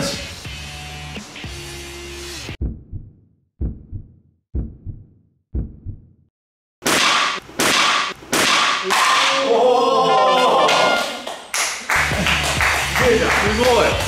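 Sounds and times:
background music: 0:00.0 - 0:02.6, 0:11.9 - 0:14.0.

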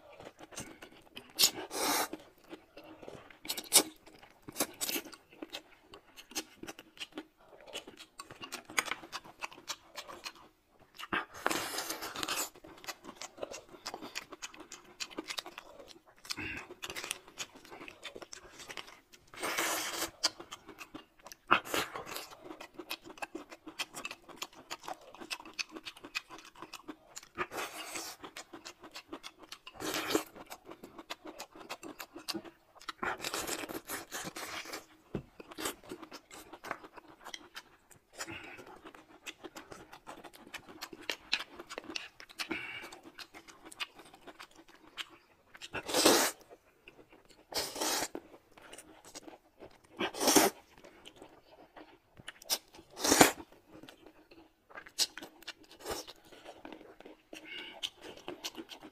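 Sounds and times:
chewing with wet crunches: 0:00.0 - 0:58.9
slurping noodles: 0:01.4 - 0:02.2, 0:45.8 - 0:46.4, 0:47.5 - 0:48.2, 0:50.0 - 0:50.6, 0:52.9 - 0:53.4.

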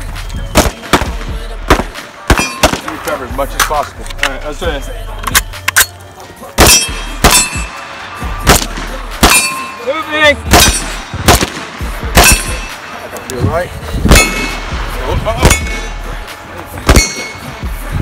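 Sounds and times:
rifle shots: 0:00.5 - 0:03.0, 0:06.6 - 0:07.8, 0:08.4 - 0:09.6, 0:10.5 - 0:12.8
metallic ring: 0:06.7 - 0:07.7, 0:09.3 - 0:09.9, 0:17.0 - 0:17.5.

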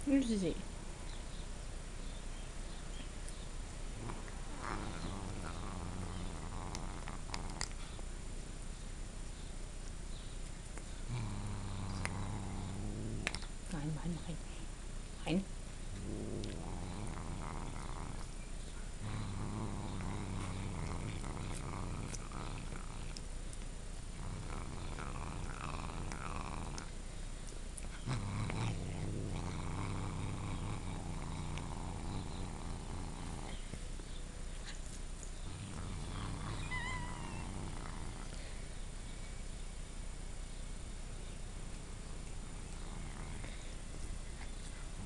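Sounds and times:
cat growling: 0:03.9 - 0:07.8, 0:11.1 - 0:13.6, 0:15.9 - 0:18.4, 0:19.0 - 0:23.2, 0:24.2 - 0:26.9, 0:27.8 - 0:33.6, 0:35.4 - 0:38.4
teeth rasping on a chew: 0:04.1 - 0:08.0, 0:19.2 - 0:32.4.

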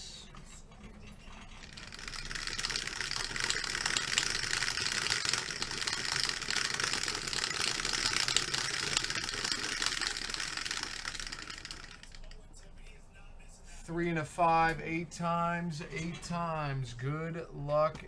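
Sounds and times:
dice rattling in plastic dome: 0:01.7 - 0:12.3.

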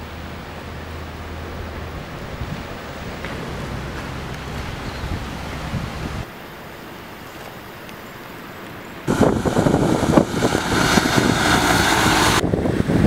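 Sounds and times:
tyres hissing on wet road: 0:00.0 - 0:06.3, 0:07.8 - 0:13.0
faint wind and water noise: 0:00.0 - 0:13.0
fire engine driving past: 0:09.1 - 0:13.0.

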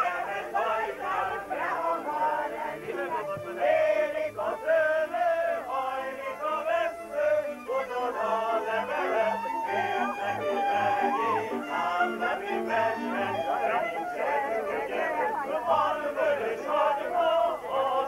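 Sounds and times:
group of voices singing: 0:00.0 - 0:18.0
live band with violin: 0:02.5 - 0:14.8.

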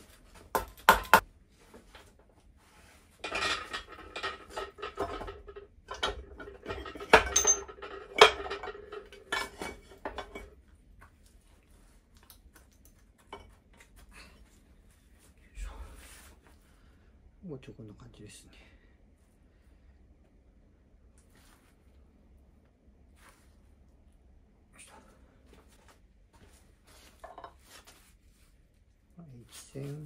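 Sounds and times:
metal clinking and scraping: 0:03.0 - 0:10.6, 0:27.0 - 0:27.9.

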